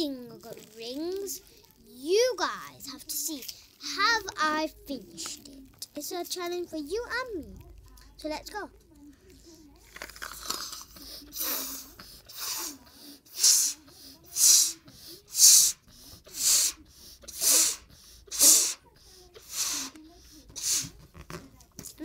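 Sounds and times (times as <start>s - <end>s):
child blowing up balloon: 10.3s - 21.5s.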